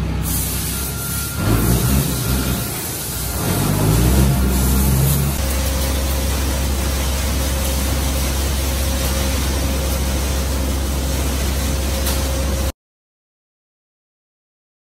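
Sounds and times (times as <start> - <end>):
machine hum: 1.1 - 12.7.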